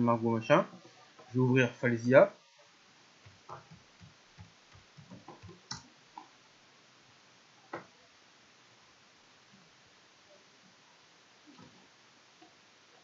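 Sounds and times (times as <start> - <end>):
keyboard typing taps: 3.2 - 6.3.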